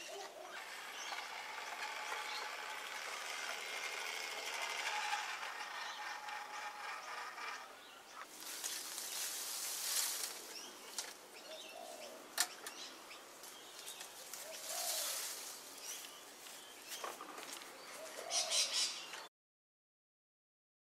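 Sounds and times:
bird calls: 0.0s - 2.6s, 10.4s - 19.3s
small electric motor whirring: 0.0s - 8.3s
soft rushes of noise: 8.3s - 10.5s.

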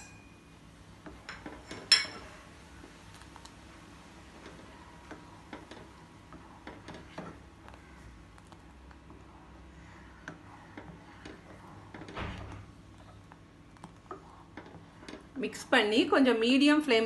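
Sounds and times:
ladle stirring ticks and scrapes: 10.2s - 12.2s, 13.3s - 15.4s.

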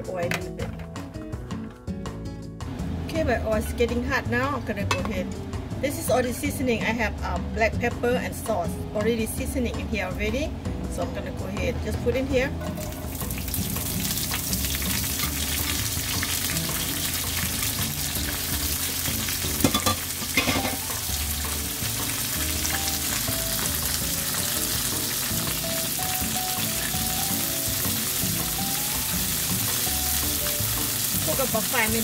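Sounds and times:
insects sizzling in hot oil: 12.8s - 32.0s.

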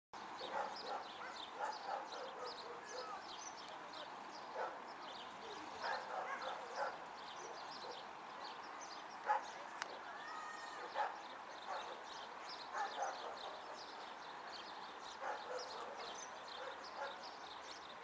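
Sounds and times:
dog barking: 0.4s - 3.2s, 4.6s - 4.8s, 5.8s - 8.0s, 9.2s - 10.0s, 10.8s - 12.1s, 12.7s - 13.9s, 15.2s - 17.3s.

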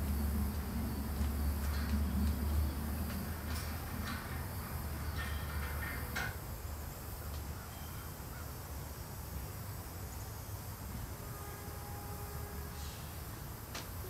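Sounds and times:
low rumble: 0.0s - 5.8s.

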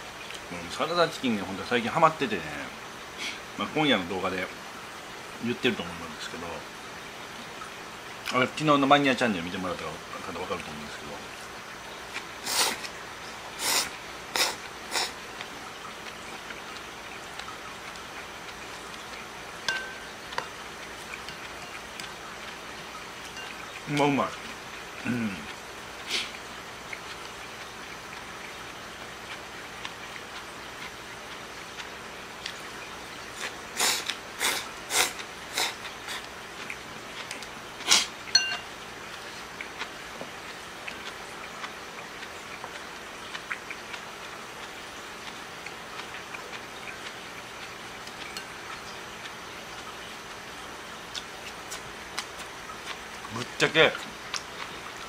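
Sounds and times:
man slurping noodles: 12.4s - 12.9s, 13.6s - 15.2s, 33.4s - 36.3s
person slurping noodles: 12.4s - 12.9s, 13.6s - 15.2s.

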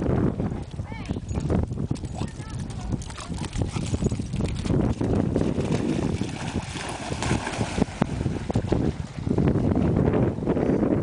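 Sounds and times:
wind buffeting microphone: 0.0s - 11.0s
dogs splashing through water: 2.0s - 9.3s.

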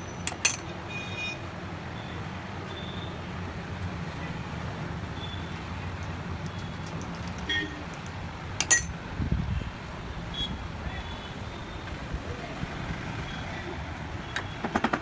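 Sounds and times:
low traffic hum: 0.0s - 15.0s
hammer tapping metal: 8.6s - 8.9s.

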